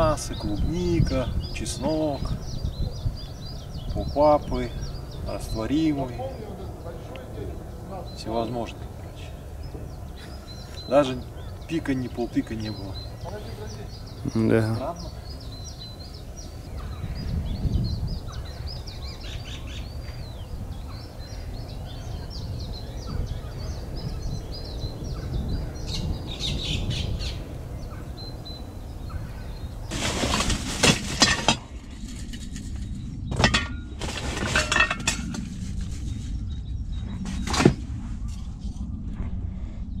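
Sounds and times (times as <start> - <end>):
wind rumble on microphone: 0.0 - 8.2, 12.7 - 40.0
small birds chirping: 0.0 - 40.0
camping gear clattering: 29.8 - 35.9.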